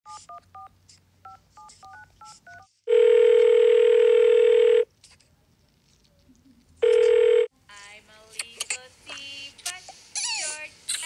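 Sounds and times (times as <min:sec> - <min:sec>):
telephone ringback tone: 0:02.0 - 0:04.8, 0:06.8 - 0:07.5.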